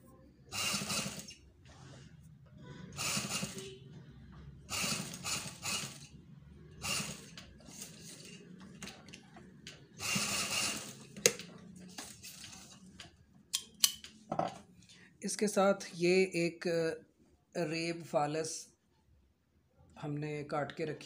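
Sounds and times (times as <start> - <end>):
sewing machine stitching: 0.5 - 3.9, 4.6 - 13.0.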